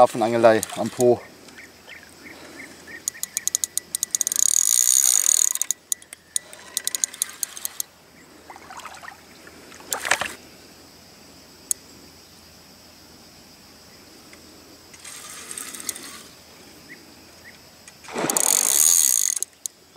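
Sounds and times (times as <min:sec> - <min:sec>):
fishing reel drag clicking: 0:00.2 - 0:01.2, 0:02.9 - 0:07.9, 0:15.0 - 0:16.4, 0:18.2 - 0:19.8.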